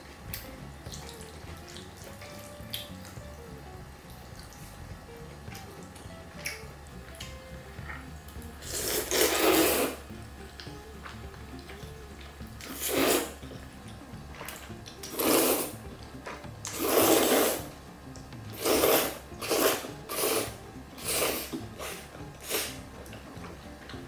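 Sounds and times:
slurping noodles: 8.6 - 10.2, 12.6 - 13.4, 14.5 - 17.8, 18.5 - 22.8.

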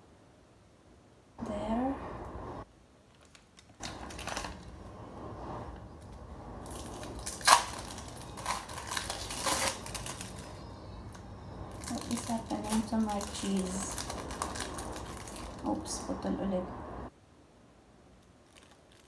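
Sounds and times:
plastic film crinkling: 3.1 - 4.8, 6.6 - 16.1, 18.4 - 19.0.

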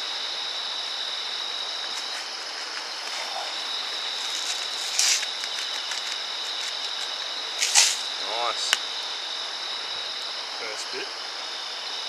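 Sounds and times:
constant hiss: 0.0 - 12.0
night insects chirping: 0.0 - 12.0
short hissing burst: 7.6 - 8.2.

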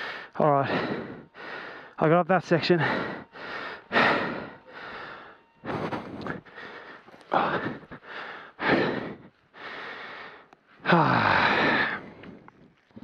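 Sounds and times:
person breathing heavily: 0.0 - 13.0.

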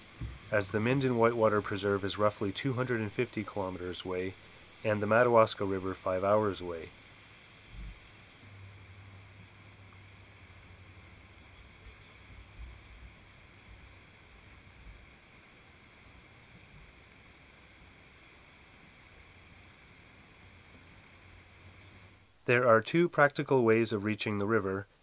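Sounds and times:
soft low thumps: 0.0 - 0.9, 7.7 - 8.8
faint low hum and hiss: 0.0 - 25.0.

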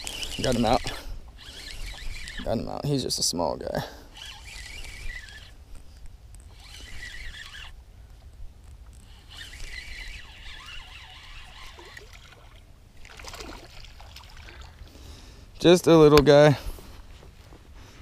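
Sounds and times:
spinning reel whirring: 0.0 - 5.6, 6.4 - 7.8, 9.0 - 12.5.

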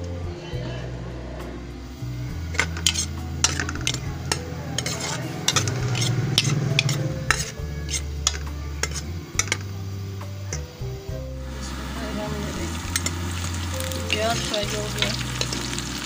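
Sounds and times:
onions sizzling in oil: 1.9 - 16.0
ladle clinking and scraping pot: 2.5 - 9.8, 12.9 - 16.0.

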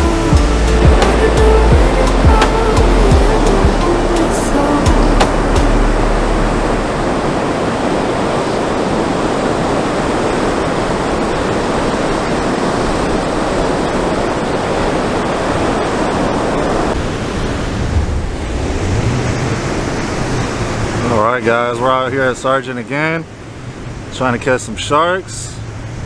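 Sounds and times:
ocean surf breaking: 0.0 - 26.0.

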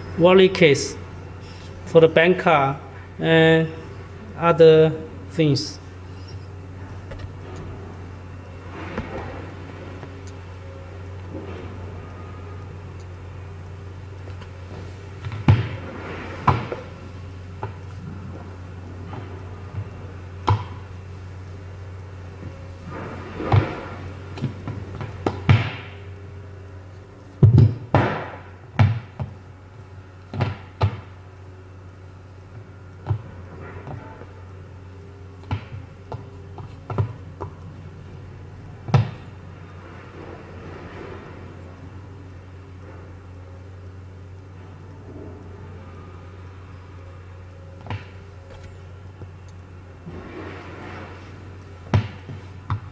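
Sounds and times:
steady low hum: 0.0 - 52.9.

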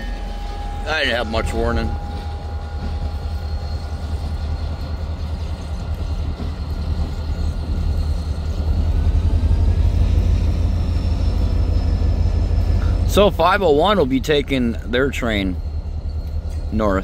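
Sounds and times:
high engine whine: 0.0 - 17.0
deep engine rumble: 8.0 - 17.0.

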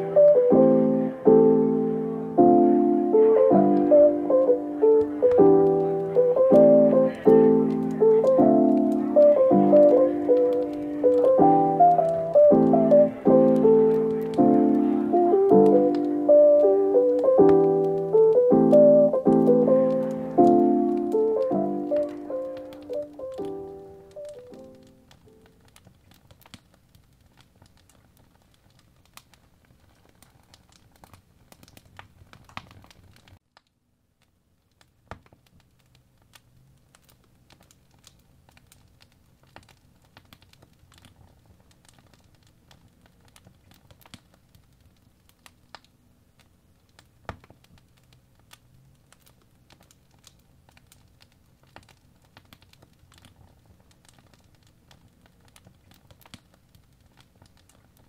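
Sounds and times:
low background hiss: 0.0 - 26.1.

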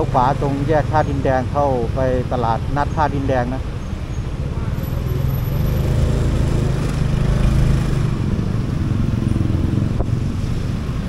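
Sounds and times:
road and traffic noise: 0.0 - 11.0.

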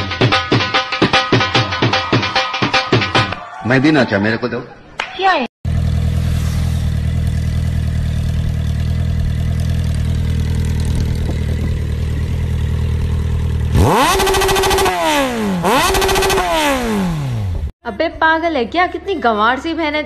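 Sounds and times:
engine revving: 5.7 - 17.7
motorcycle engines idling: 5.7 - 17.7.

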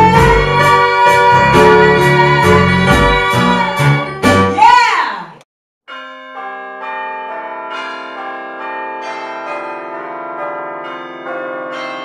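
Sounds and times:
bell chimes ringing: 5.9 - 12.0.

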